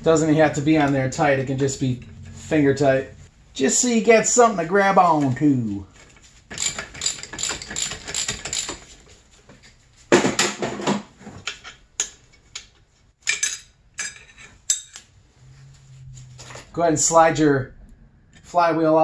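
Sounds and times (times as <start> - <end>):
metal clinks and scraping: 6.5 - 9.0.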